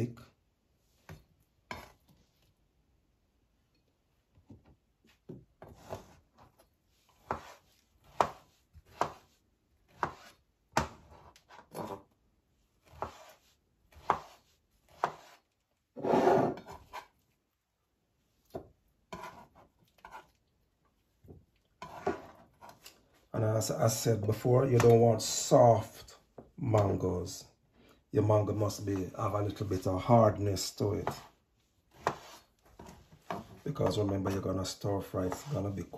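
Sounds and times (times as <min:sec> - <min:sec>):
knife chopping on cutting board: 0:07.2 - 0:09.3, 0:09.9 - 0:12.0, 0:12.8 - 0:15.4, 0:31.9 - 0:34.3, 0:35.3 - 0:35.7.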